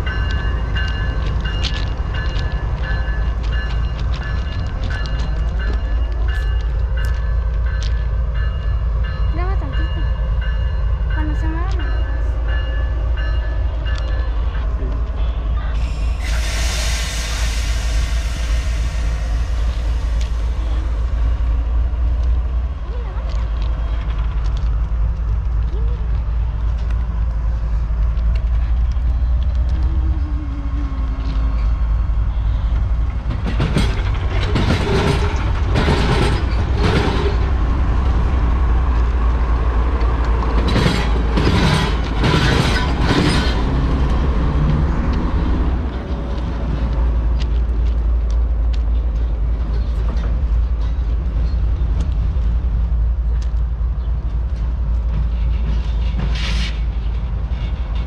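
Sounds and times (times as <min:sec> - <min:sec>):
diesel locomotive engine running: 0:00.0 - 0:58.0
wheels clanking over rail crossing: 0:28.4 - 0:53.4.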